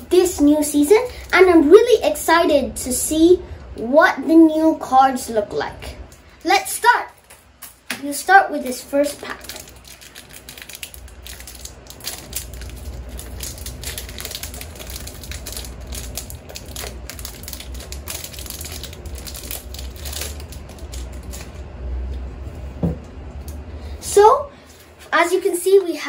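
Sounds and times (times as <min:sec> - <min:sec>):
steady low hum: 0:00.0 - 0:26.0
foil wrapper crinkling and tearing: 0:09.0 - 0:21.6.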